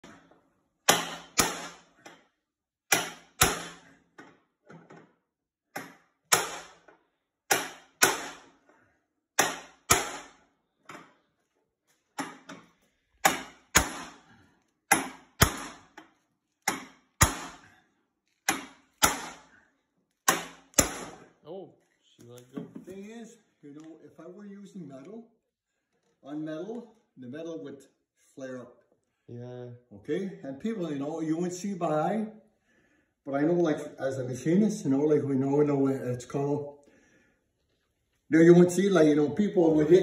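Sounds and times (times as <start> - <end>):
hammer striking metal punch: 0.8 - 1.8, 2.9 - 3.9, 5.8 - 6.9, 7.5 - 8.5, 9.4 - 10.4, 13.2 - 14.2, 14.9 - 15.8, 16.7 - 17.6, 18.5 - 19.4, 20.3 - 21.2.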